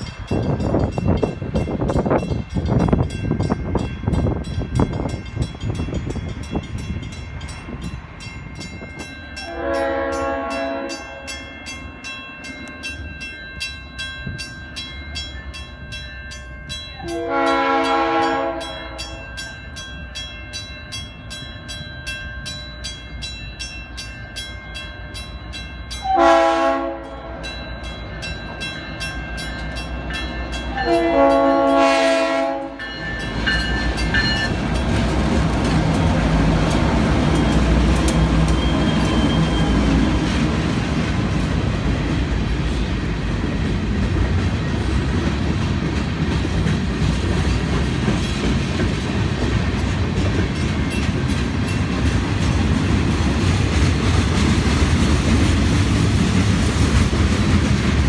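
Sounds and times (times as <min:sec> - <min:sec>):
crossing bell ringing: 0:00.0 - 0:54.6
locomotive rumbling: 0:00.0 - 0:58.0
train wheels clattering on rails: 0:00.0 - 0:58.0
locomotive horn: 0:09.4 - 0:11.4, 0:17.0 - 0:19.2, 0:26.0 - 0:27.5, 0:30.7 - 0:32.8.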